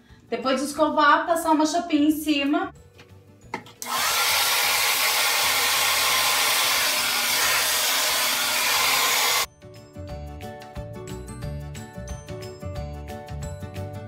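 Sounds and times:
hair dryer blowing air: 3.8 - 9.5.

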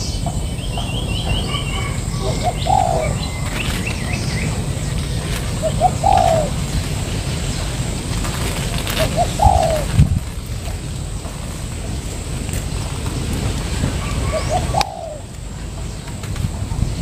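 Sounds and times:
small birds chirping faintly: 0.0 - 17.0
dove cooing: 0.3 - 10.4, 13.2 - 15.7.

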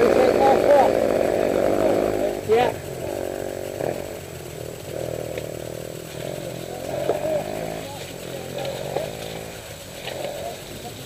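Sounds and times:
small engine running: 0.0 - 11.0.

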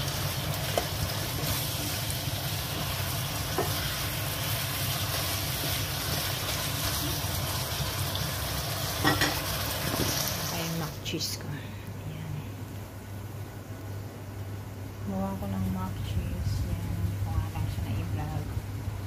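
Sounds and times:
food sizzling in a wok: 0.0 - 11.1
steady low hum: 8.6 - 19.0.

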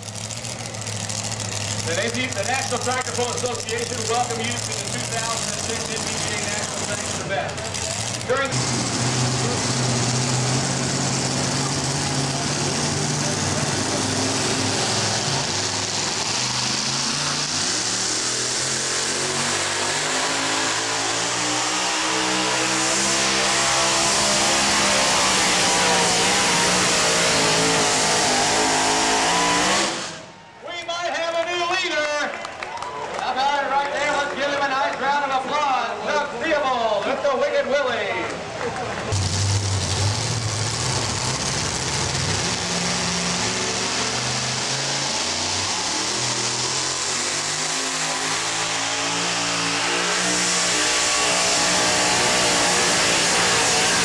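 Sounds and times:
truck engine running hard: 0.0 - 30.6, 32.0 - 54.0.

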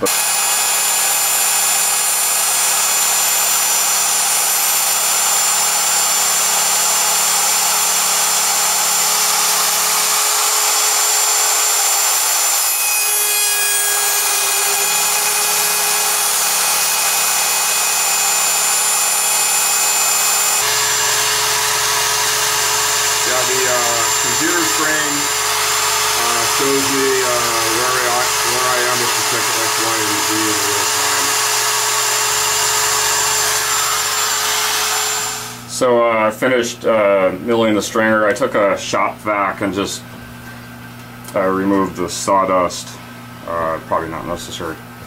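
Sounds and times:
router cutting wood: 0.0 - 35.8.

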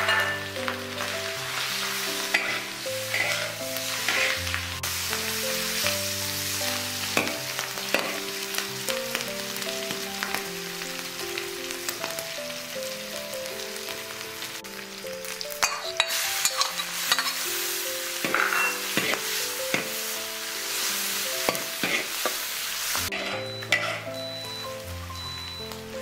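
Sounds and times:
metal spatula scraping wok: 0.0 - 5.1, 7.2 - 8.3, 15.7 - 24.2
pork sizzling in a wok: 0.0 - 26.0.

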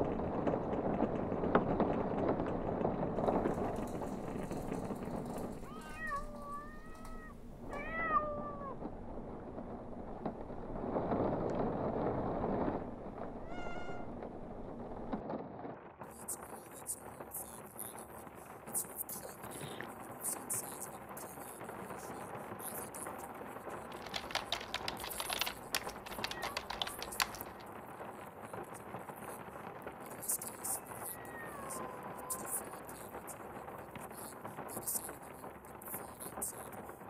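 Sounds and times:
cat meowing: 5.6 - 8.8, 13.4 - 14.2, 24.0 - 27.6, 30.8 - 32.8.

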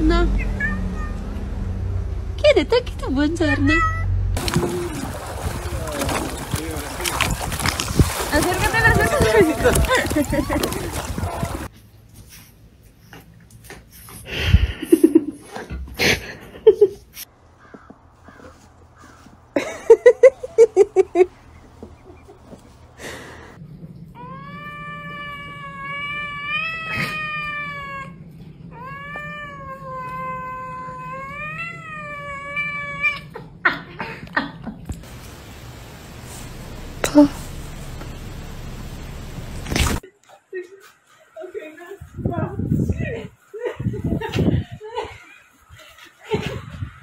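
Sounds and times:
kitten meowing: 0.4 - 1.2.

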